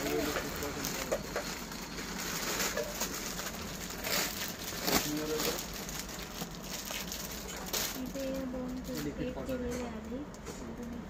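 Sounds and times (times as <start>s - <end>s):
plastic packaging crinkling: 0.0s - 9.6s.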